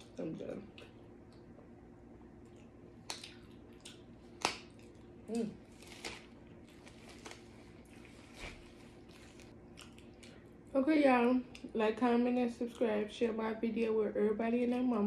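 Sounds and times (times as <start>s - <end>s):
soft rubbing and rustling: 5.7s - 9.5s.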